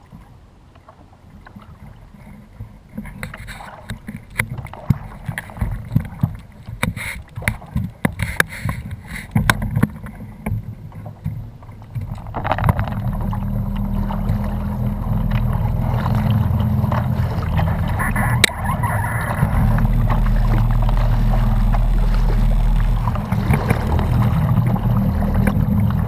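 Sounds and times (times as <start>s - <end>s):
small waves slapping hull: 0.0s - 26.0s
wind rumble on microphone: 0.0s - 26.0s.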